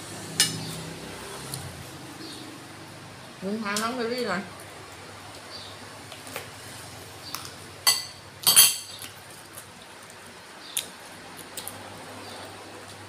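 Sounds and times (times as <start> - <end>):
metal spoon clinking on dish: 7.8 - 8.9.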